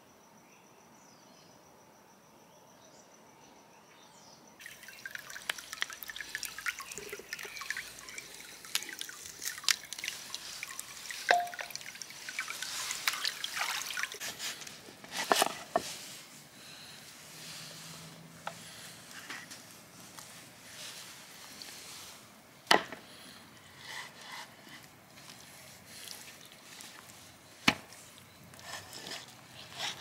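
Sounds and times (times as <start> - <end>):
liquid crackling and dripping: 4.6 - 15.4.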